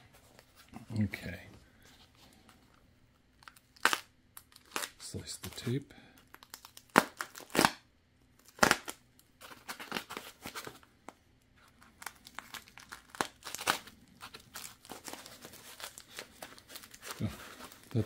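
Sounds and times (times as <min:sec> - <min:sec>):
plastic crinkling: 0:11.6 - 0:18.0.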